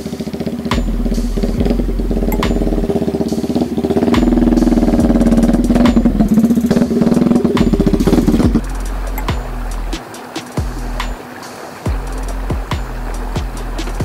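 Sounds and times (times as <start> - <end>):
motorcycle engine passing by: 0.0 - 8.7.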